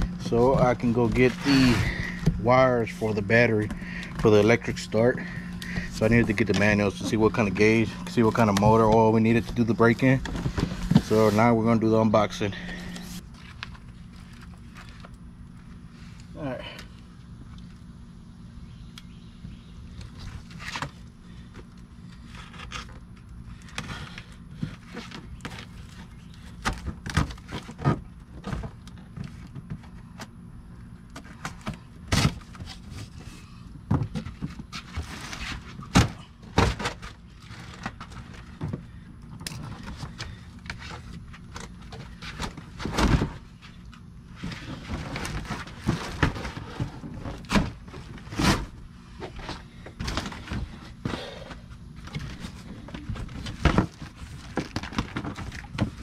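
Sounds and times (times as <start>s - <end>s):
cardboard flaps scraping: 0.2s - 13.6s.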